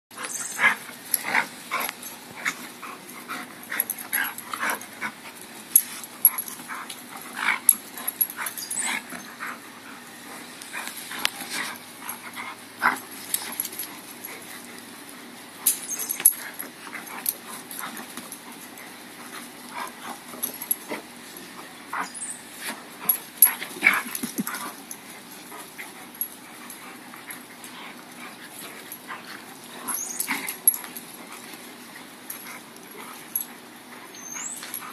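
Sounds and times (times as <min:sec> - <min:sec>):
dogs play-fighting: 0:00.1 - 0:34.9.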